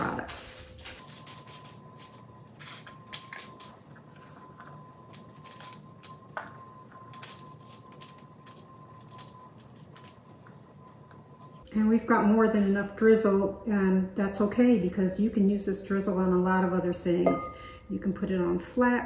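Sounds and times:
faint high hum: 0:00.0 - 0:19.0
cheese crumbles ticking and scraping: 0:00.6 - 0:11.6
potato chips rustling in skillet: 0:00.8 - 0:04.4, 0:05.1 - 0:06.2, 0:07.1 - 0:10.4.

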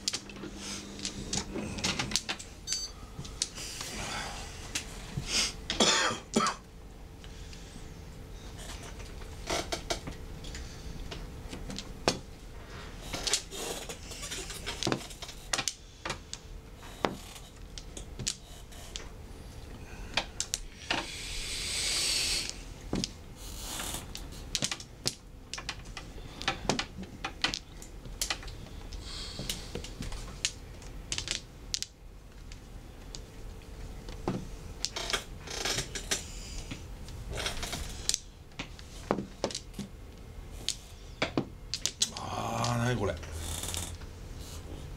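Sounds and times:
breathy hiss: 0:00.4 - 0:05.6, 0:19.8 - 0:22.8, 0:29.0 - 0:29.9
mahjong tiles clicking: 0:30.4 - 0:33.3.

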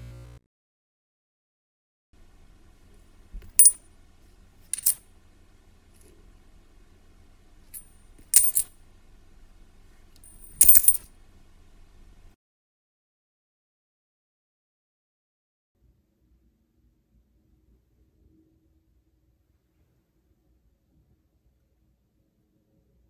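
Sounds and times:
faint low hum: 0:02.2 - 0:12.4
metal coins clinking: 0:03.5 - 0:03.8, 0:04.7 - 0:05.0, 0:07.7 - 0:08.7, 0:10.2 - 0:11.1.

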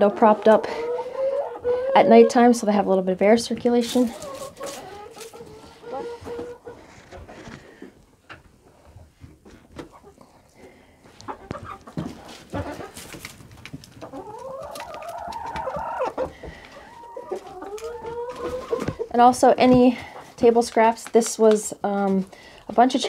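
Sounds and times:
drawn-out hen call: 0:00.0 - 0:02.5, 0:04.1 - 0:06.8, 0:14.0 - 0:19.2
hens clucking: 0:00.0 - 0:08.5, 0:09.5 - 0:23.0.

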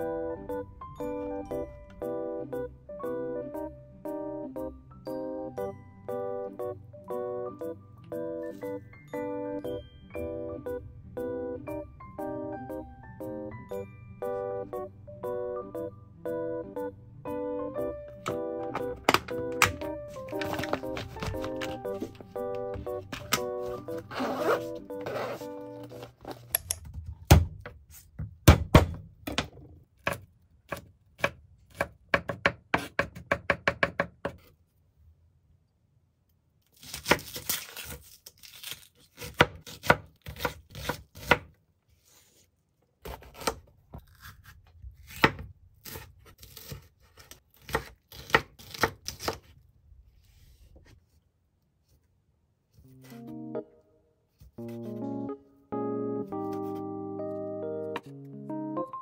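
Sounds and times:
knife chopping on wooden board: 0:39.3 - 0:41.5.

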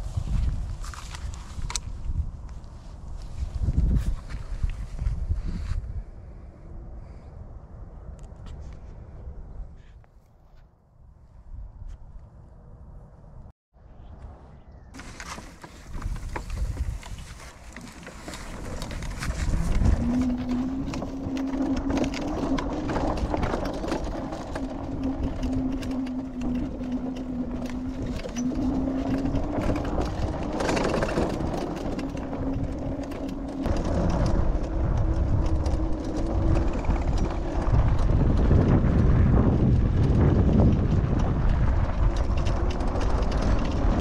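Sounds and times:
clicks and rattles: 0:15.0 - 0:44.0
electric scooter motor whining: 0:15.2 - 0:44.0
low rumble: 0:18.0 - 0:44.0.

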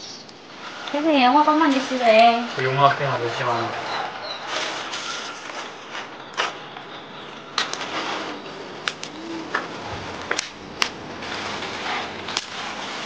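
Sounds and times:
boiling water hissing: 0:00.0 - 0:05.0, 0:07.7 - 0:13.0.

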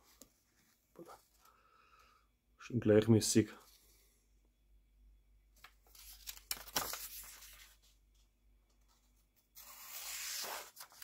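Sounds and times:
paper rustling: 0:05.6 - 0:11.0
knife slicing paper: 0:09.6 - 0:11.0.

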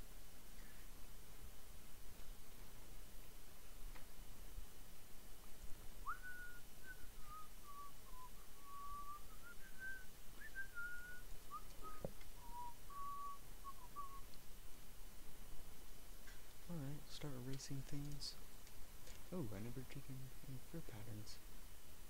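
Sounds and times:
person whistling a tune: 0:06.1 - 0:14.2.

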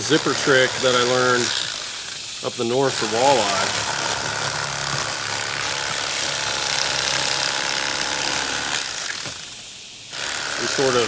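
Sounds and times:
electric knife motor buzzing: 0:00.0 - 0:11.0.

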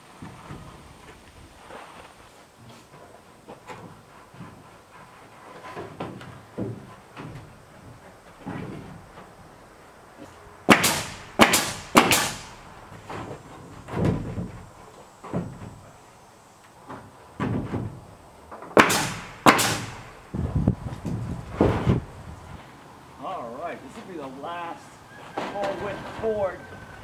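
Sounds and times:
boards knocking and shuffling: 0:02.6 - 0:16.1, 0:16.7 - 0:22.0, 0:25.3 - 0:27.0
nail gun firing: 0:10.7 - 0:12.6, 0:18.7 - 0:20.3.

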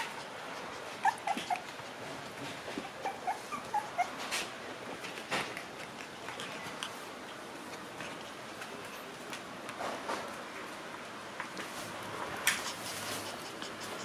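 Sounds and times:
puppies whimpering: 0:00.0 - 0:02.0, 0:02.8 - 0:04.3.

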